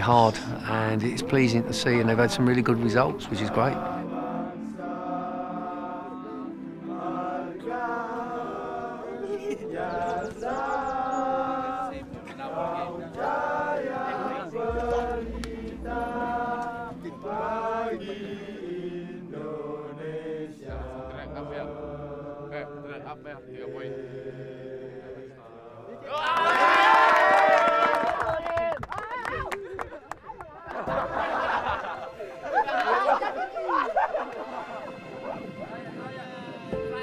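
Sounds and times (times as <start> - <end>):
choir-like vocals: 0.0 - 27.4, 30.8 - 37.0.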